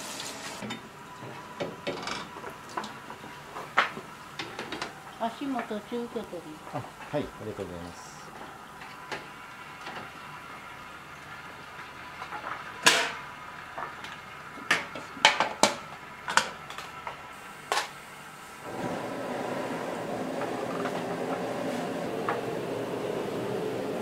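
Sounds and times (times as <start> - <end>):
gas burner rushing: 0.0 - 10.7, 11.6 - 24.0.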